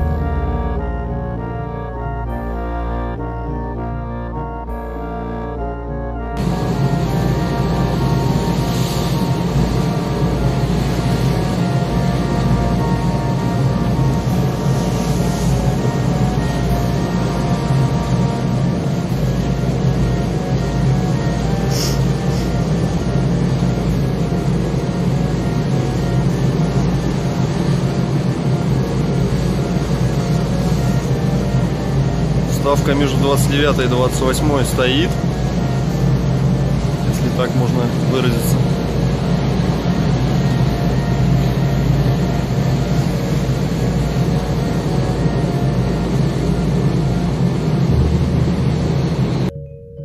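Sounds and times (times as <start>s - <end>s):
boat engine rumbling: 0.0s - 49.8s.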